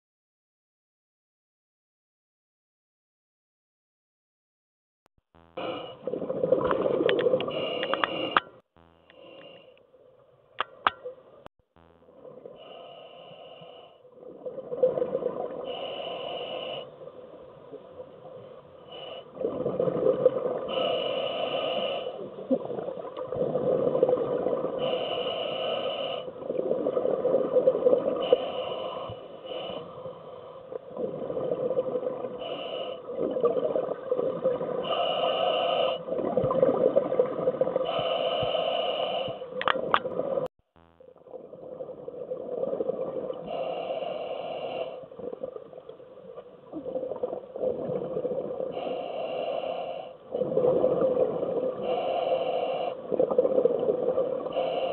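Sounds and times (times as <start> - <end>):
faint steady hum: 5.4 - 54.9
rush of exhaled bubbles: 5.6 - 8.3, 19.4 - 20.8, 22.3 - 24.9, 36.1 - 38.0, 46.6 - 48.9, 50.3 - 52.1
regulator hissing inhalation: 7.5 - 8.5, 15.7 - 17.1, 20.6 - 22.4, 24.8 - 26.4, 28.1 - 30.8, 34.8 - 36.1, 37.8 - 39.6, 43.5 - 45.2, 48.7 - 50.5, 51.8 - 53.3, 54.4 - 54.9.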